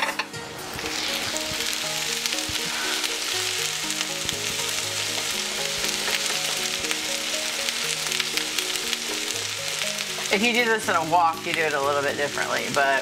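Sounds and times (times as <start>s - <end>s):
wooden spatula scraping: 0.0s - 3.4s
rice and egg sizzling: 0.0s - 13.0s.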